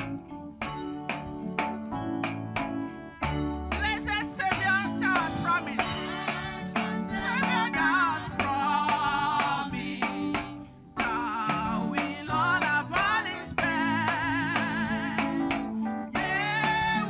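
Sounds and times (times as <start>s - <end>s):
keyboard accompaniment: 0.0s - 17.0s
steady beat: 0.0s - 17.0s
choir singing: 5.7s - 15.6s, 16.2s - 17.0s
woman singing into a microphone: 5.8s - 9.8s.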